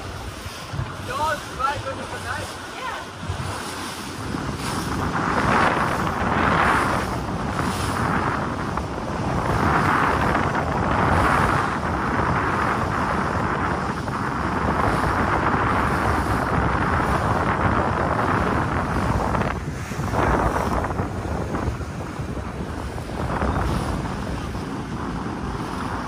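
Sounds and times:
sea water washing against hull: 0.0 - 26.0
wind on microphone: 0.0 - 26.0.

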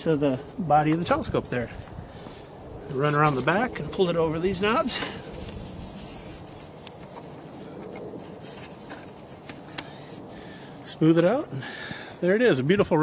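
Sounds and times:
fabric rustling and rubbing: 3.0 - 10.3.

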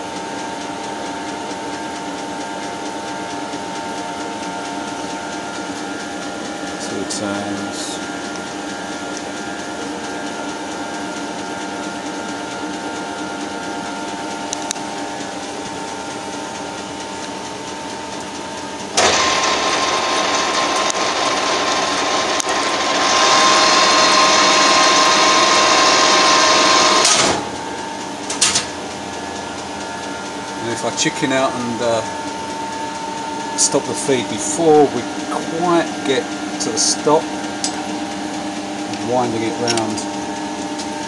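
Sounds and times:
lathe humming: 0.0 - 41.0
rushing cutting noise with whine: 0.0 - 41.0.

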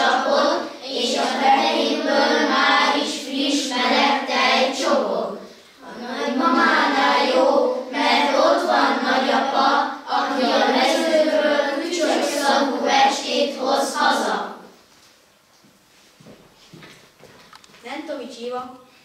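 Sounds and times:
children singing: 0.0 - 14.7.

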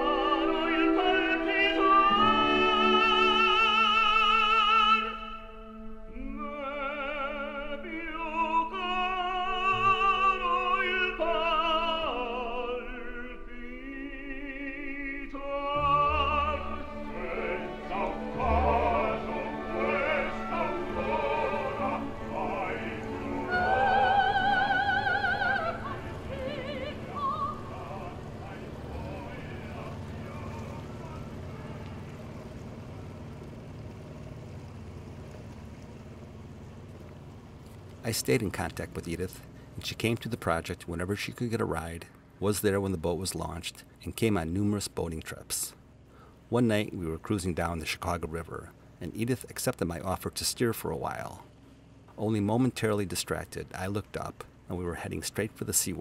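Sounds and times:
classical accompaniment: 0.0 - 12.8, 15.2 - 32.7
operatic singing: 0.0 - 33.1
boat motor droning: 0.0 - 56.0.

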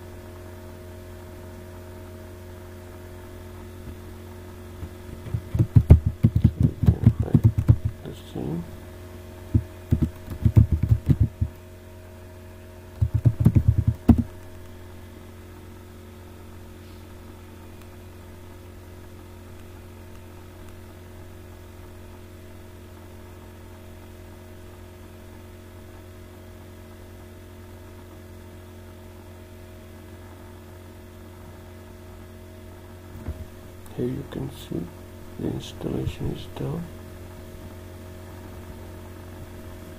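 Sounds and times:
low electrical hum: 0.0 - 39.9
computer keyboard typing: 5.2 - 8.0, 9.5 - 11.6, 13.0 - 14.6.

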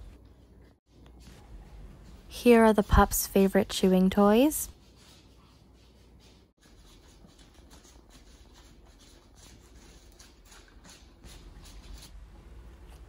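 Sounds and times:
puppies licking at food dish: 6.6 - 12.2.

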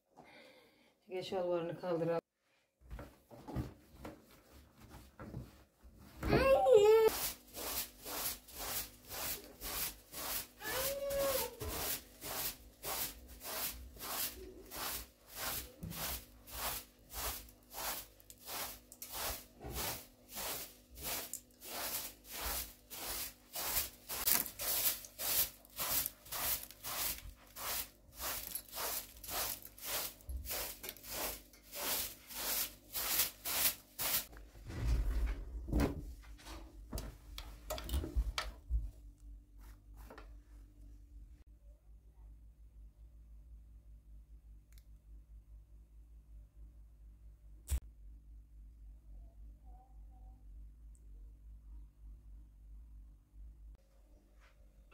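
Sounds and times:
broom sweeping a carpet: 6.4 - 34.4.

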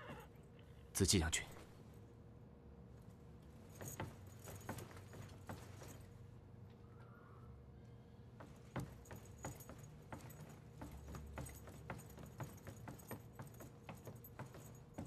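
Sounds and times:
footsteps: 3.7 - 6.1, 8.4 - 15.0.

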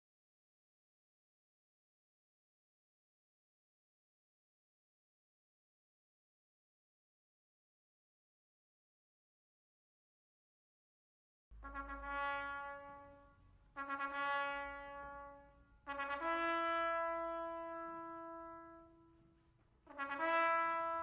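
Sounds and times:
slow brass music: 11.5 - 21.0.

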